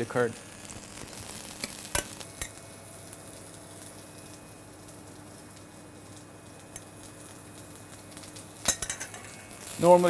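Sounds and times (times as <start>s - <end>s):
low hum with faint hiss: 0.0s - 10.0s.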